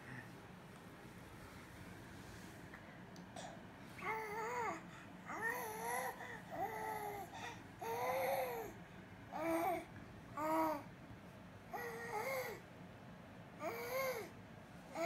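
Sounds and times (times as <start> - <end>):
baby cooing: 4.0 - 8.7.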